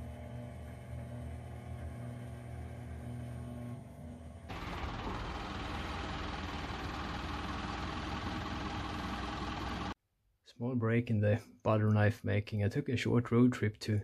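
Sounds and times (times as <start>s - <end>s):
vehicle engine running: 4.5s - 10.0s.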